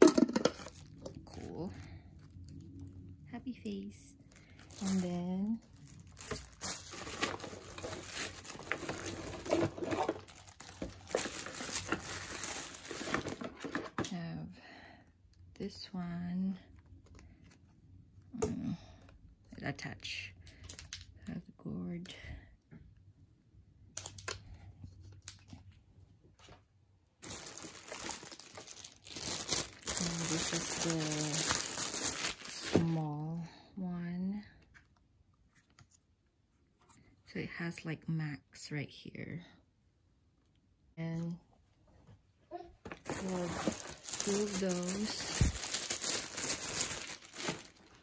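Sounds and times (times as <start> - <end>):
plastic packaging crinkling: 4.2 - 14.1, 27.2 - 33.0, 42.9 - 48.0.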